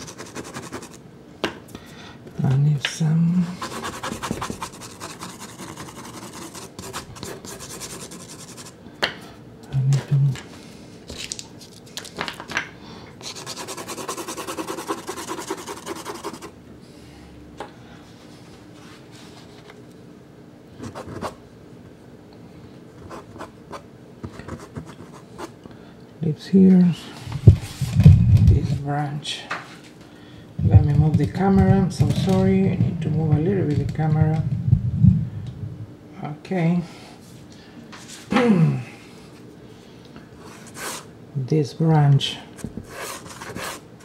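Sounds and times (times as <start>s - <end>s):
pastel scratching on card: 0.0s - 1.0s, 3.6s - 8.8s, 13.2s - 16.5s, 42.9s - 43.8s.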